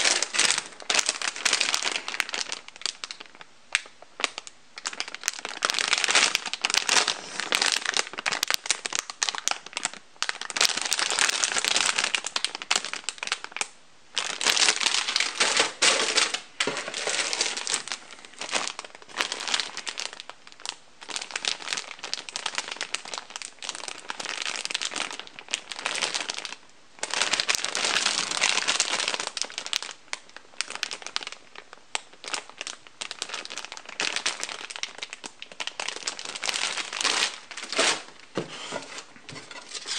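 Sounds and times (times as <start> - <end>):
plastic bags crinkling: 0.0 - 39.9.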